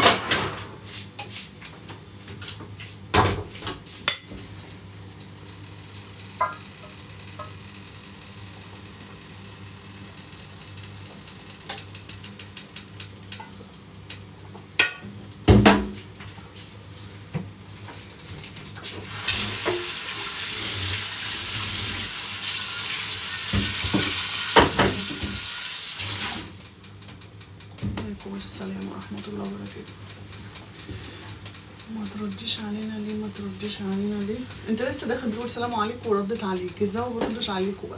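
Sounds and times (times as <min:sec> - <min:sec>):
tap water running into sink: 0:19.0 - 0:28.1.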